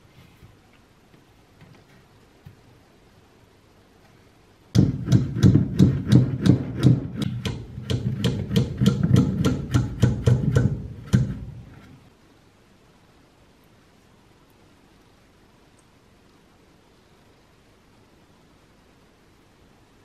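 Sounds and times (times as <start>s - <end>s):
hammer striking wire on wood: 4.7s - 11.9s.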